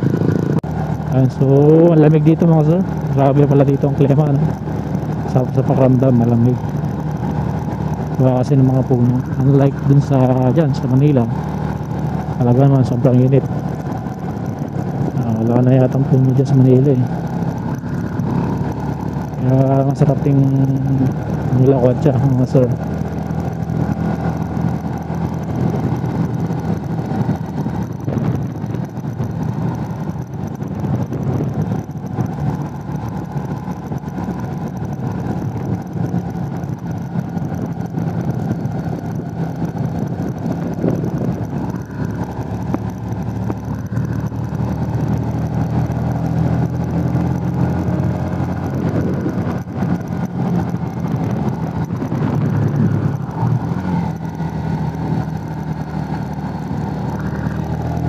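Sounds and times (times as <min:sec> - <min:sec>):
motorcycle engine running: 0:00.0 - 0:58.0
wind noise on microphone: 0:23.5 - 0:46.6, 0:47.7 - 0:55.5.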